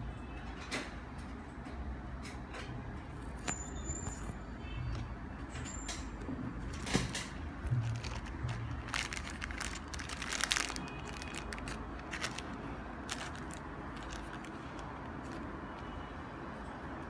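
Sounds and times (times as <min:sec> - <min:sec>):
steady background noise: 0:00.0 - 0:17.0
plastic bag crinkling: 0:07.7 - 0:15.5.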